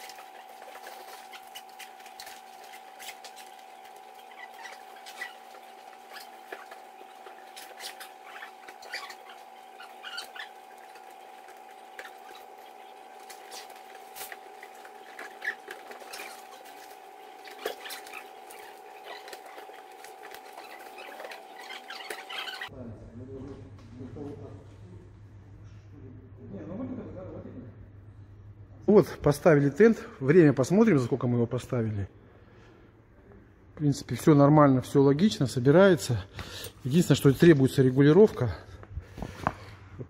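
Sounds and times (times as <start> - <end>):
steady high hum: 0.0 - 40.0.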